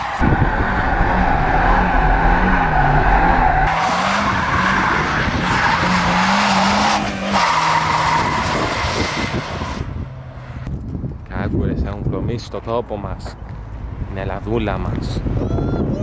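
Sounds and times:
car engine revving hard: 0.0s - 10.6s
tyres skidding and squealing: 0.0s - 10.7s.

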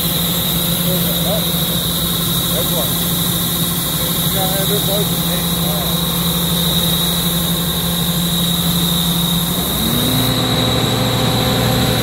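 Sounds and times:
air compressor running: 0.0s - 12.0s
high whine: 5.9s - 12.0s.

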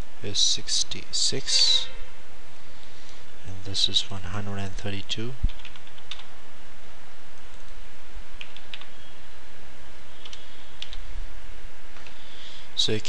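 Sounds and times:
steady background hiss: 0.0s - 13.0s
keyboard and mouse clicks: 5.5s - 6.3s, 8.4s - 9.0s, 10.2s - 11.0s.

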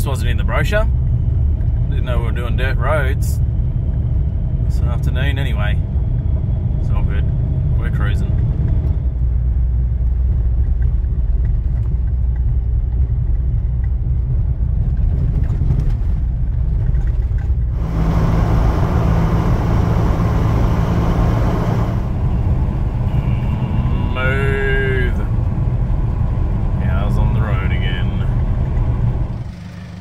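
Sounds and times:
car engine and tyres rumbling: 0.0s - 30.0s
steady hum: 17.6s - 29.5s.

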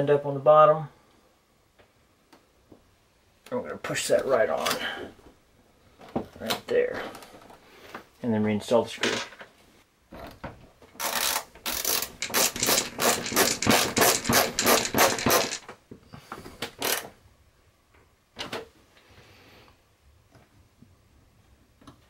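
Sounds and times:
screwdriver driving screw creaks: 11.0s - 15.7s, 16.8s - 17.1s
screwdriver scrapes: 11.0s - 15.7s, 16.8s - 17.1s.

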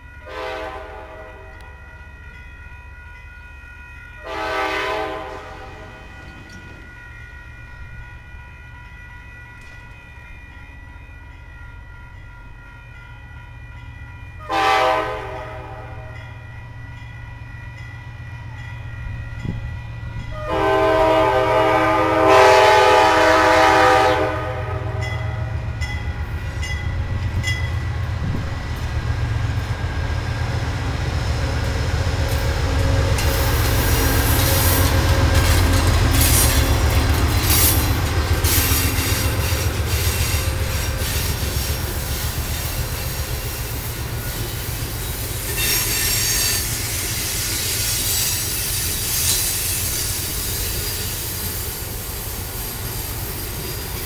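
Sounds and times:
locomotive horn blasts: 0.2s - 1.8s, 4.2s - 6.1s, 14.4s - 16.2s, 20.3s - 25.5s
locomotive engine rumble: 4.2s - 48.0s.

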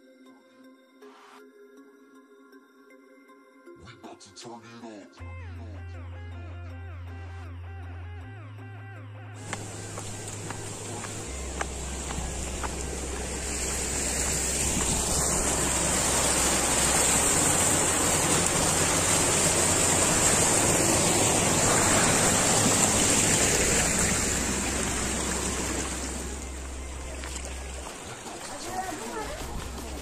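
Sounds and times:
waterfall rushing and splashing: 9.4s - 30.0s.

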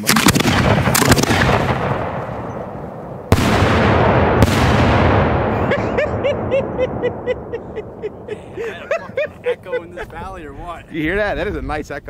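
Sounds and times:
rolling echo: 0.0s - 10.9s.

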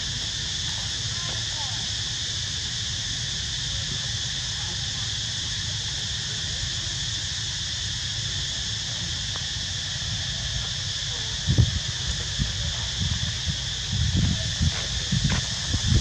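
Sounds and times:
insect chorus buzzing: 0.0s - 16.0s.

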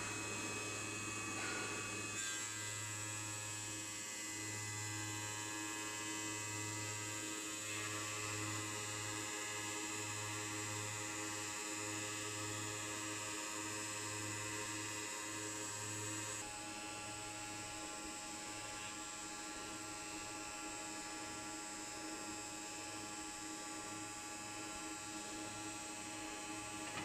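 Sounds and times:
tile cutter motors humming: 0.0s - 3.4s, 26.3s - 27.0s
motor whine: 0.0s - 3.8s.

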